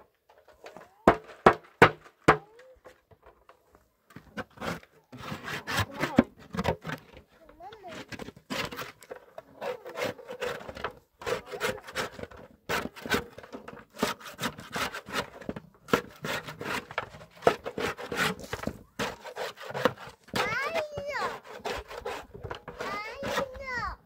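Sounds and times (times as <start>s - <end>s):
trowel scraping against basin: 4.3s - 24.0s.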